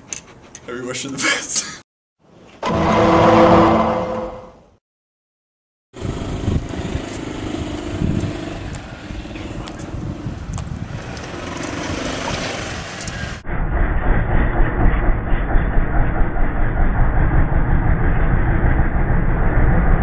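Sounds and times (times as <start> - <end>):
vehicle rumble: 6.0 - 20.0.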